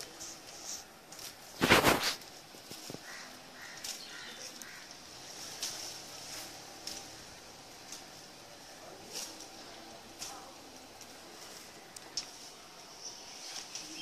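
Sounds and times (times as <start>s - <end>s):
tree leaves and branches rustling: 0.0s - 14.0s
faint snaps and ticks: 9.2s - 11.2s, 11.9s - 12.4s.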